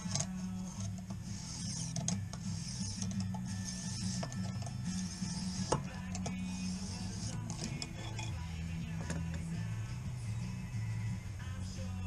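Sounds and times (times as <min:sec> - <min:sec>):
hone stone scraping knife edge: 0:00.0 - 0:08.5.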